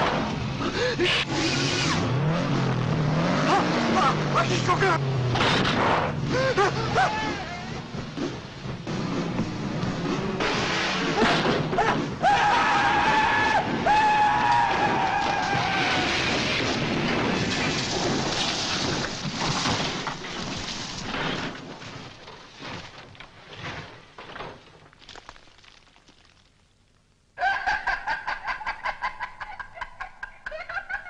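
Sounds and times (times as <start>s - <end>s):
car crash rumble: 0.0s - 0.6s, 1.2s - 24.9s.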